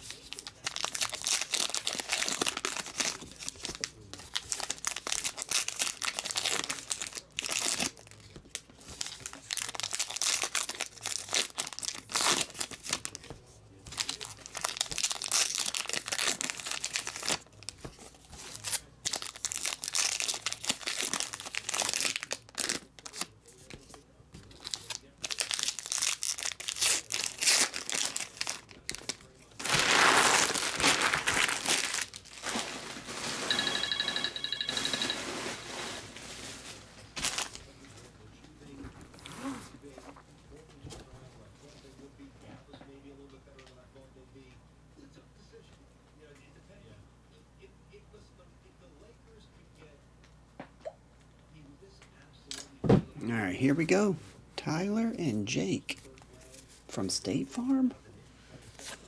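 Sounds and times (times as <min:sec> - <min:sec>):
card pack wrappers tearing and crinkling: 0:00.0 - 0:23.8, 0:24.5 - 0:33.5, 0:36.0 - 0:37.7.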